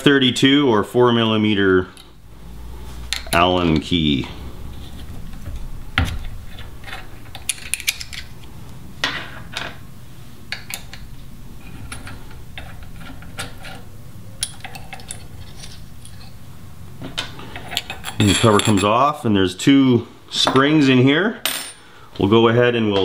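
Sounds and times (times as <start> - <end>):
low hum: 1.6 - 18.8.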